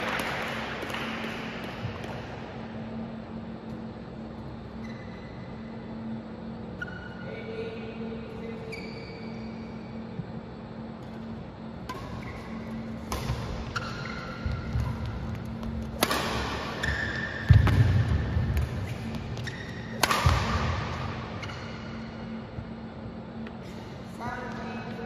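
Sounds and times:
low hum: 0.0s - 25.0s
shoe squeaks: 4.8s - 5.8s, 6.7s - 7.7s, 8.3s - 10.1s, 12.0s - 12.9s, 13.6s - 15.0s, 16.8s - 17.4s, 18.8s - 20.0s
racket hitting shuttlecock: 11.8s - 22.0s.

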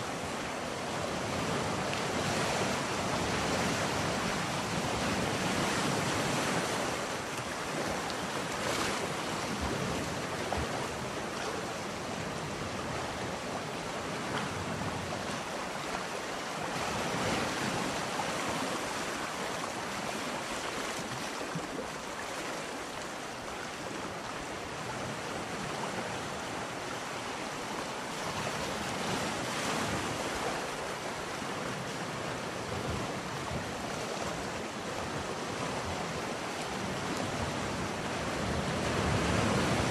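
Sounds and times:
ocean surf washing in: 25.3s - 39.9s.

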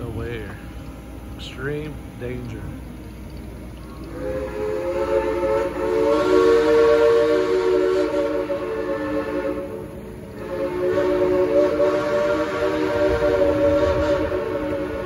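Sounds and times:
steam train whistle: 4.1s - 15.0s.

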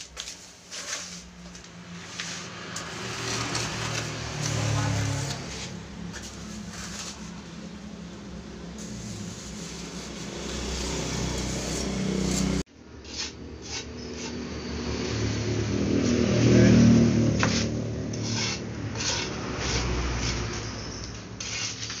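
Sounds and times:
trowel scraping wet concrete: 0.0s - 1.4s, 2.0s - 7.6s, 8.8s - 14.4s, 17.4s - 22.0s
engine hum: 1.3s - 12.7s, 14.3s - 21.5s.

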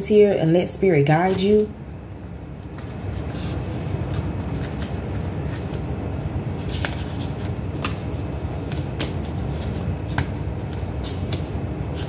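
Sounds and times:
cards being shuffled: 2.2s - 5.9s, 6.5s - 12.0s.

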